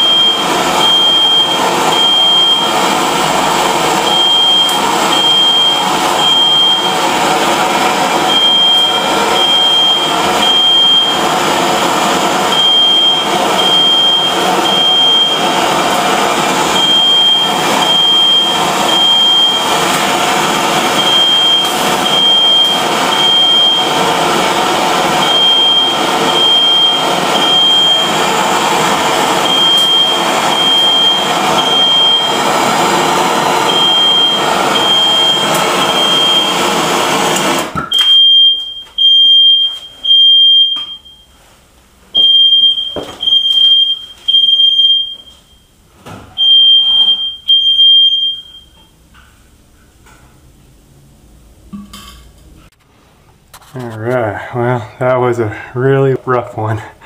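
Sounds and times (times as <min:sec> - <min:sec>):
smoke alarm beeping: 0:00.0 - 0:37.3, 0:37.9 - 0:41.4, 0:42.1 - 0:45.8, 0:46.4 - 0:49.0
gas torch flame hissing: 0:00.0 - 0:38.2.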